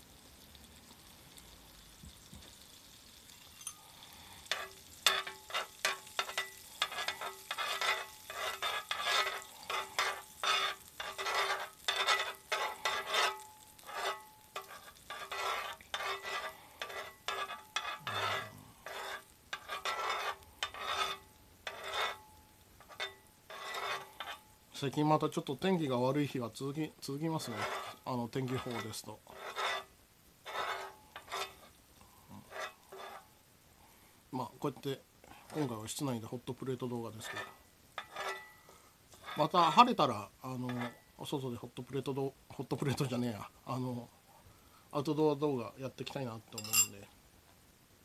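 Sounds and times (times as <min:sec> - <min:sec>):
butter sizzling: 0:00.0 - 0:44.0
metal utensil scraping pan: 0:03.4 - 0:24.6, 0:27.1 - 0:33.3, 0:35.5 - 0:35.8, 0:37.1 - 0:40.0, 0:40.6 - 0:41.1, 0:46.5 - 0:47.1.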